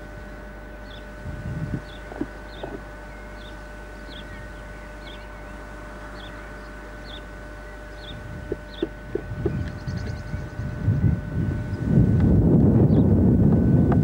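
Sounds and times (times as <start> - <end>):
faint steady whine: 0.0 - 14.0
bird chirping: 0.8 - 1.1, 1.8 - 11.9.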